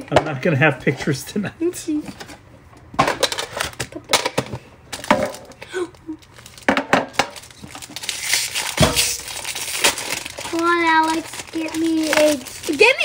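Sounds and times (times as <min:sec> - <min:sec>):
foil wrapper crinkling: 0:04.9 - 0:13.0
sharp clicks and handling rustles: 0:06.3 - 0:13.0.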